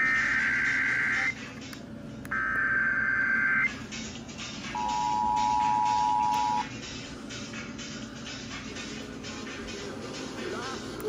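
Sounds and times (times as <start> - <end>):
shrill data tones: 0.0 - 1.4, 2.4 - 3.7
two-tone attention signal: 0.0 - 1.4, 4.8 - 6.7.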